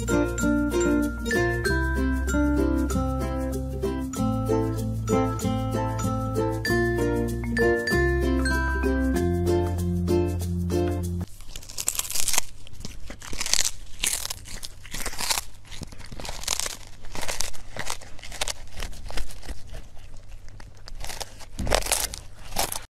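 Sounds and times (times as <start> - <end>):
kitten chewing crunches: 11.2 - 22.9.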